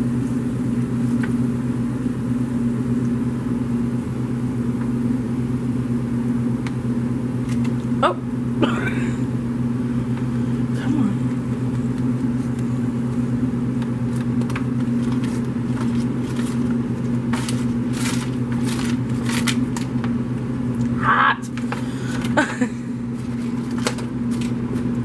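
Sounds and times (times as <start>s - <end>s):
kitchen machine hum: 0.0s - 25.0s
foil pan crinkling and scraping: 13.7s - 20.2s, 23.1s - 25.0s.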